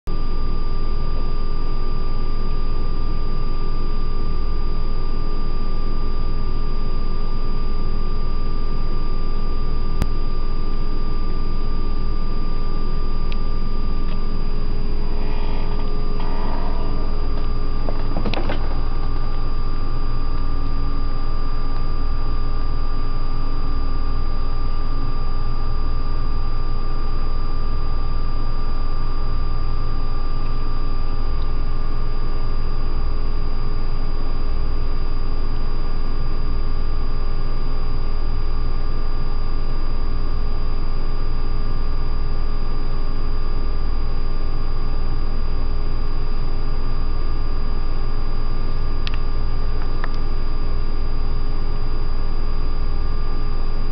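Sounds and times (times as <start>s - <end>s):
faint whining tones: 0.1s - 34.4s
steady mechanical hum: 0.1s - 53.9s.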